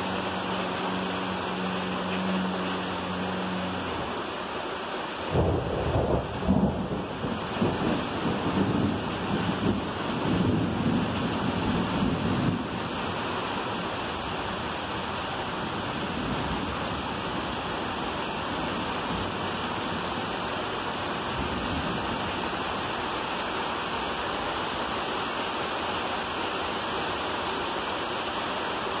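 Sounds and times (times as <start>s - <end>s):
heavy rain pouring: 0.0s - 29.0s
water running off roof: 0.0s - 29.0s.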